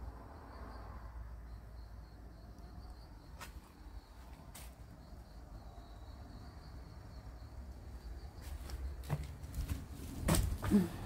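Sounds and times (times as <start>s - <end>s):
footsteps and knocks: 8.4s - 10.9s.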